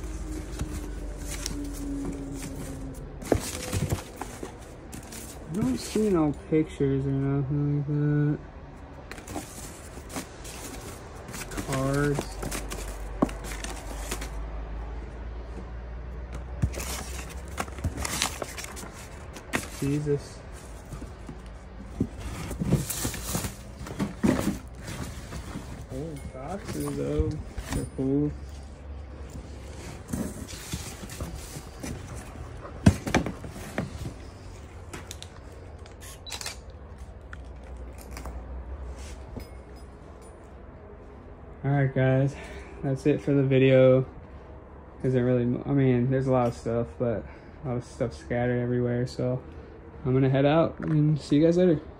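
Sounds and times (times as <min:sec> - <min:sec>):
paper rustling: 0:00.0 - 0:06.1, 0:09.1 - 0:14.4, 0:16.6 - 0:25.9.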